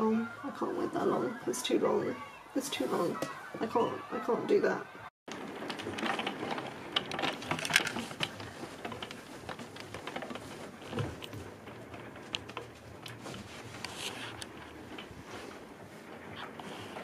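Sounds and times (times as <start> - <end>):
hail pattering: 5.3 - 17.0.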